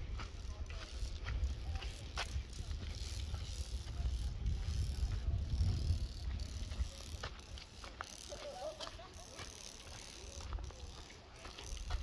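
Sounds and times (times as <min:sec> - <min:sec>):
wind buffeting microphone: 0:00.0 - 0:07.9.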